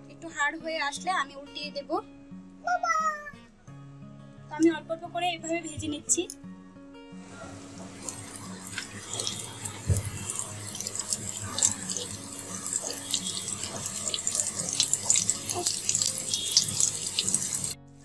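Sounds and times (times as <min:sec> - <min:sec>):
dough rolls deep-frying in oil: 0:07.6 - 0:17.8.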